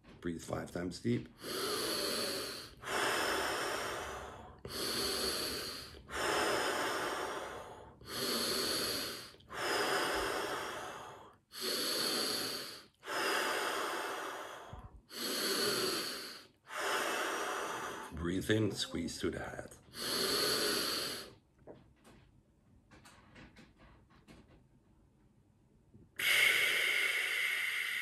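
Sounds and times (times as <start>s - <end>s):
man breathing deeply: 1.3s - 18.2s, 19.8s - 21.4s, 26.2s - 28.0s.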